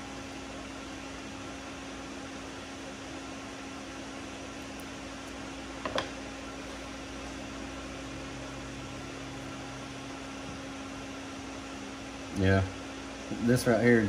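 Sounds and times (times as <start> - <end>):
ceiling fan running: 0.0 - 14.0
ice maker humming: 0.0 - 14.0.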